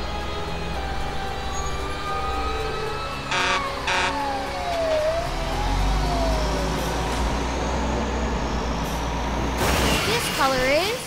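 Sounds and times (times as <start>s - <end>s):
fire engine rumbling: 0.0s - 11.0s
siren winding down: 2.4s - 9.0s
horn blasts: 3.2s - 4.5s.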